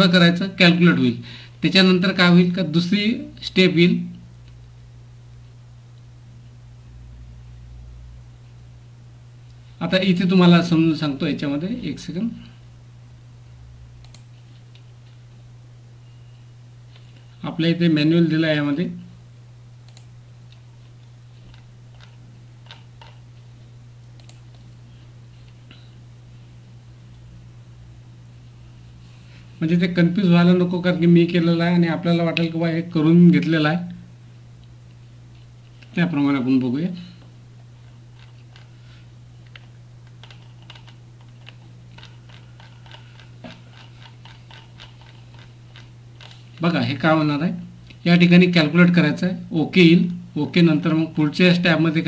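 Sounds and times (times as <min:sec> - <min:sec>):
low electrical hum: 0:00.0 - 0:52.0
computer mouse clicks: 0:14.0 - 0:14.9, 0:19.8 - 0:20.6, 0:21.5 - 0:23.2, 0:24.0 - 0:24.6, 0:39.5 - 0:46.4.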